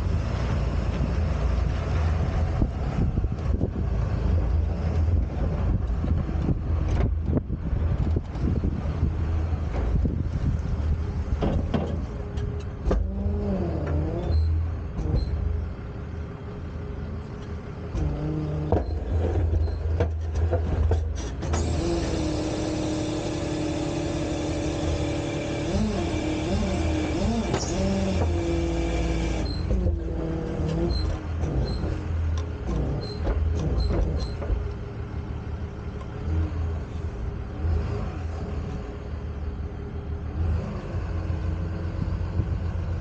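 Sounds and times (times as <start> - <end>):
truck engine revving: 0.0 - 43.0
hydraulic whine and hiss: 21.4 - 29.8.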